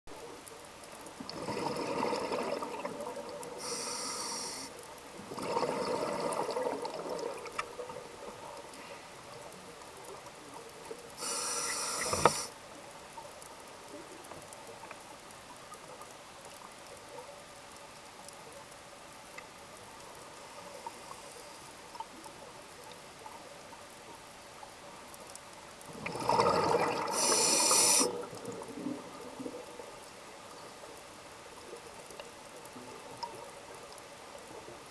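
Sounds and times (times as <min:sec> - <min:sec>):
regulator inhaling hiss: 0:03.6 - 0:04.8, 0:11.2 - 0:12.6, 0:27.1 - 0:28.2
bubbling exhalation underwater: 0:26.0 - 0:27.4.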